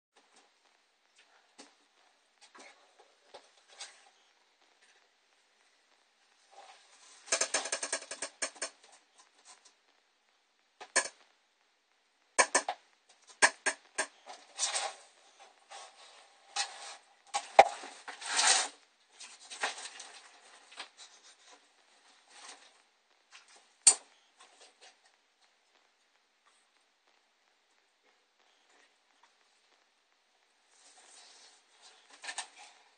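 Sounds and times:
objects clattering and scraping: 6.5s - 9.6s.

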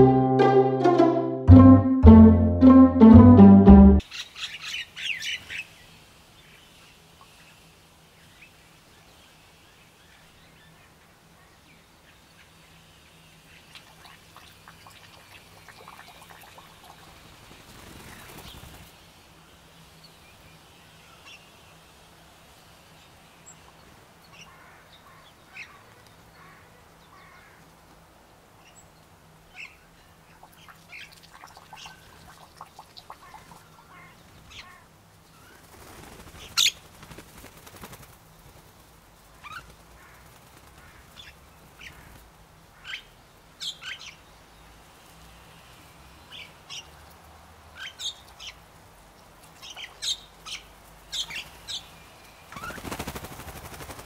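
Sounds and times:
wings flapping: 17.3s - 18.9s, 35.6s - 41.2s, 52.5s - 54.0s.

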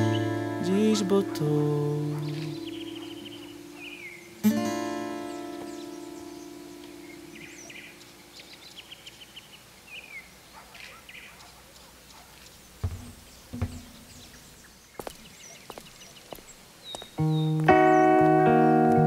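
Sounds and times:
acoustic guitar chord: 0.0s - 7.6s
small birds chirping: 0.0s - 19.0s
low knocks: 12.8s - 14.4s.

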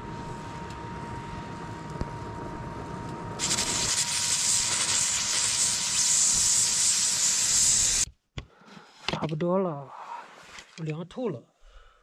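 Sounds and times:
pressure cooker steam hiss: 3.4s - 8.1s.

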